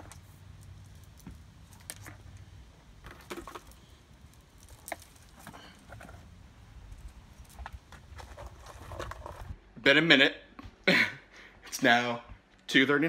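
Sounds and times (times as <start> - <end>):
string lights clicking and rattling: 0.0 - 8.2.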